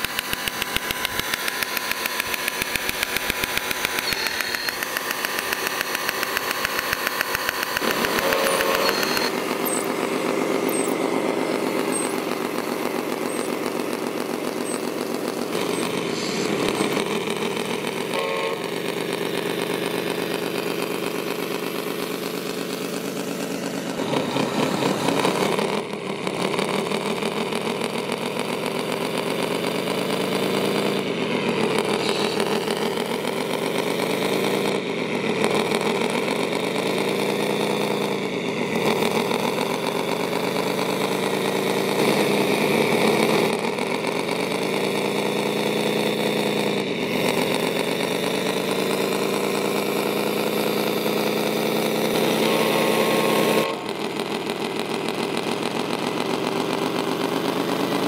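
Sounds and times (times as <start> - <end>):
steady high whine: 0.0 - 27.4, 30.8 - 45.6
simulated diesel truck engine: 0.0 - 58.0.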